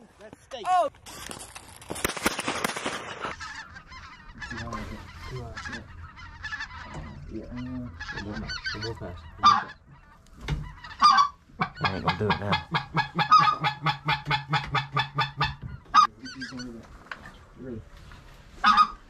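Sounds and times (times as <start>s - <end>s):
geese honking: 3.0s - 16.8s, 18.5s - 19.0s.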